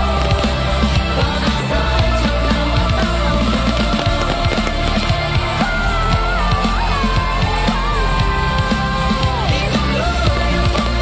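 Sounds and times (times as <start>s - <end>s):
fast steady drum beat: 0.0s - 11.0s
pitch-bending lead melody: 0.0s - 11.0s.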